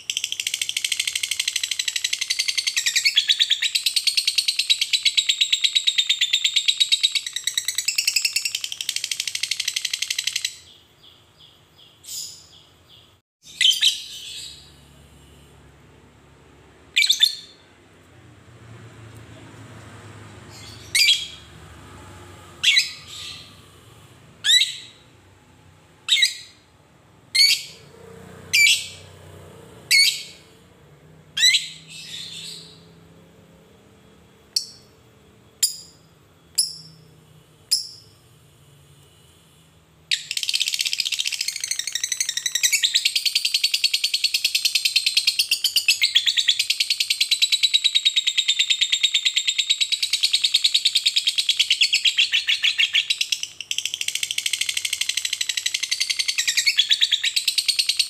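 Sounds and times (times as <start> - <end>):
lovebird chirps: 0.0 - 15.0, 16.9 - 17.7, 20.5 - 21.5, 22.6 - 25.1, 26.0 - 26.7, 27.3 - 27.9, 28.5 - 29.2, 29.9 - 30.6, 31.3 - 33.0, 34.5 - 34.9, 35.5 - 37.1, 37.7 - 38.2, 40.1 - 58.0.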